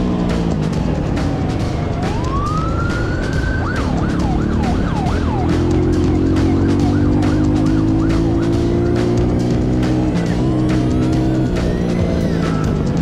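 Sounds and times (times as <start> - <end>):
dirt bike engine running: 0.0 - 13.0
police siren wail and yelp: 1.6 - 13.0.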